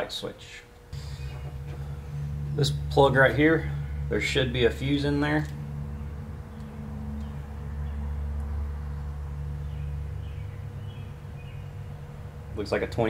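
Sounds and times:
motor or fan humming: 0.8 - 13.0
high bird chirps: 5.6 - 12.4.

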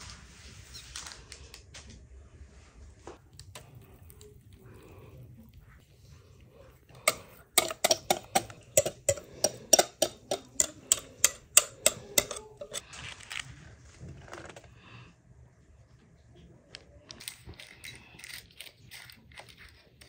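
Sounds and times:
knife scraping batter on parchment: 7.0 - 12.8.

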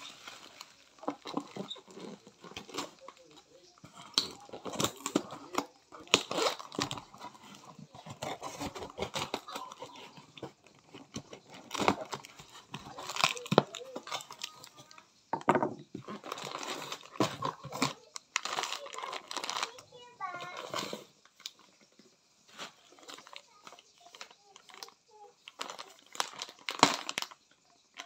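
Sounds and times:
cardboard scraping and crinkling: 0.0 - 14.9, 16.0 - 21.1
tape tearing: 4.0 - 14.6.

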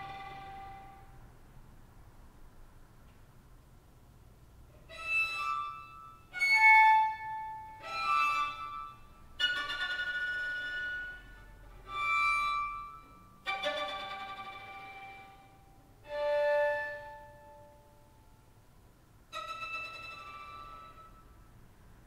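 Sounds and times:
violin harmonic notes: 0.0 - 1.2, 4.8 - 18.2, 19.3 - 21.5.

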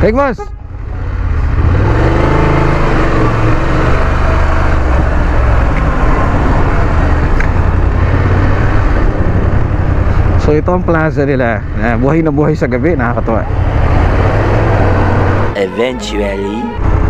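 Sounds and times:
wind and road noise: 0.0 - 17.0
motorcycle engine under way: 1.1 - 9.8.

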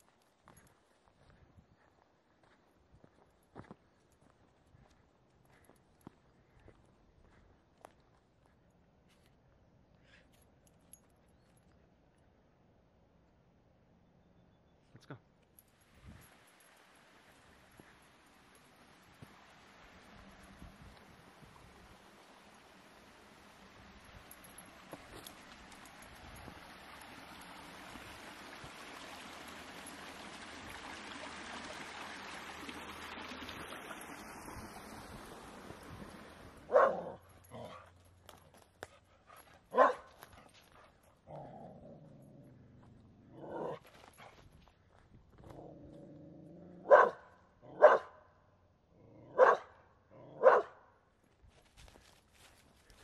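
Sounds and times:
creek rushing over rocks: 16.2 - 37.1
dog barking sharply: 36.7 - 37.2, 39.7 - 40.0, 46.9 - 48.2, 49.4 - 49.7, 50.4 - 50.8
small dog growling: 41.3 - 43.9, 45.4 - 46.9.

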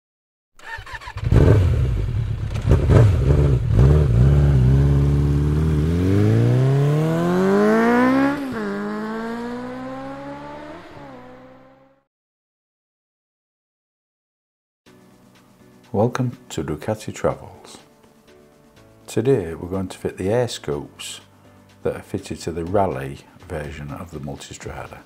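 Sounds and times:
motorcycle engine revving: 0.6 - 12.1.

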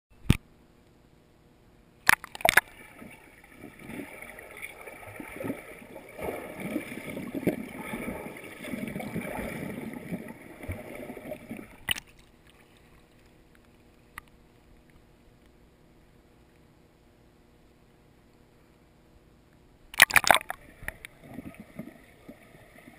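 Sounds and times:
muffled underwater churning: 2.1 - 17.0, 20.0 - 22.9.

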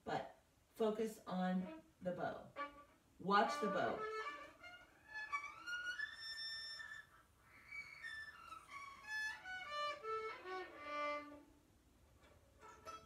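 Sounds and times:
violin single notes: 1.4 - 7.0, 8.0 - 11.5.

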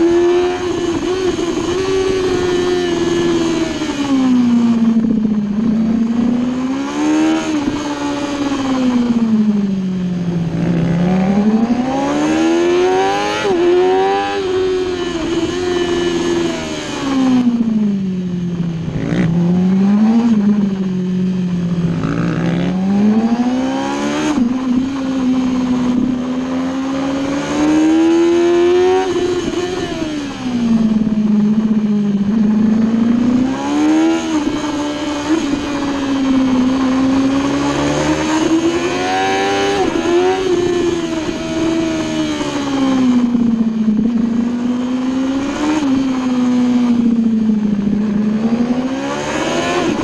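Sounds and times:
motorcycle engine revving: 0.0 - 50.0.

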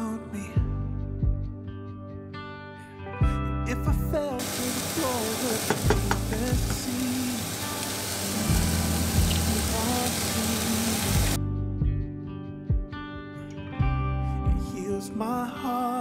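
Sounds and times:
patties sizzling in a pan: 4.4 - 11.4.

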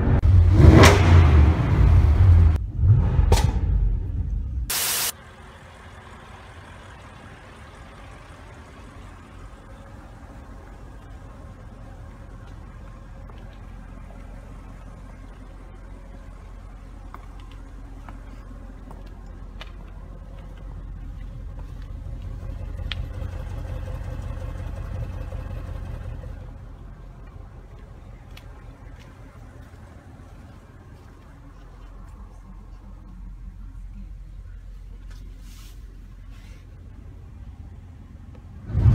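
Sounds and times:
car engine idling: 4.4 - 35.2.

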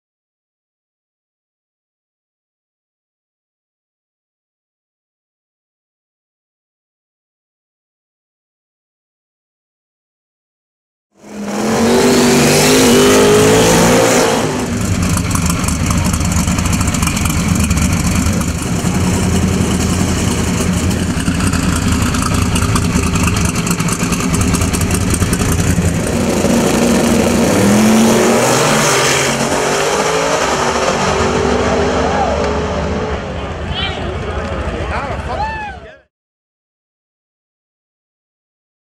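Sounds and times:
drag car engine revving: 11.2 - 35.3.

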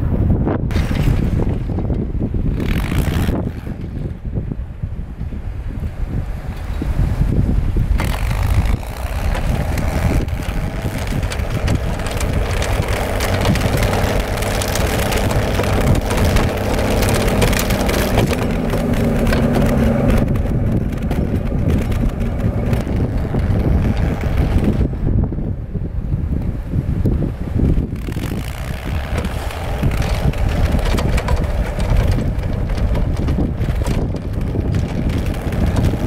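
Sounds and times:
tracked snow machine clattering: 0.7 - 4.3, 5.9 - 25.0, 27.5 - 36.0
snow crunching: 6.4 - 24.9, 28.0 - 36.0.

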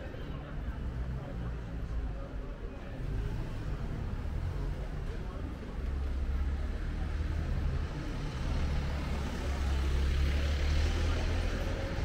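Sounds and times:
traffic noise: 0.0 - 12.0.

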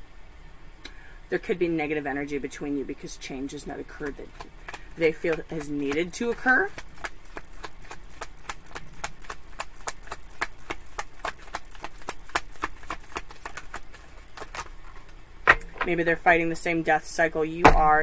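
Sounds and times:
cards being shuffled: 4.0 - 16.0.

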